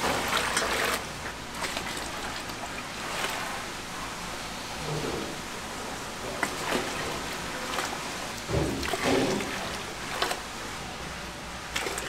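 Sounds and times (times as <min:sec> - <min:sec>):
water splashing and trickling: 0:00.0 - 0:04.1, 0:06.0 - 0:10.8, 0:11.7 - 0:12.0.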